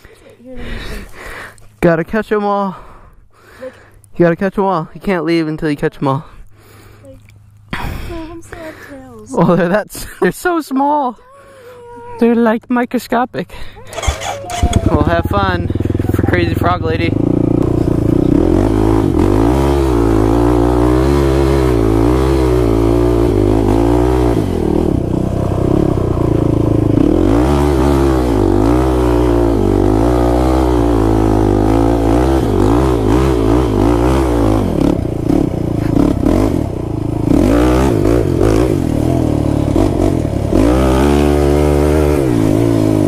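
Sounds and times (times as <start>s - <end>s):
quad engine revving: 13.8s - 43.0s.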